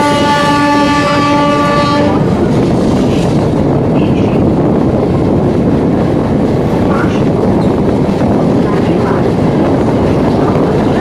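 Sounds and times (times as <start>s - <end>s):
train horn: 0.0s - 2.3s.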